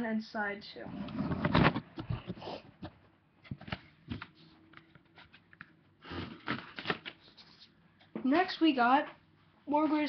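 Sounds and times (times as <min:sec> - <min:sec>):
records and jackets rustling: 0:01.1 - 0:05.7, 0:06.4 - 0:09.1
card rustling: 0:06.4 - 0:07.8.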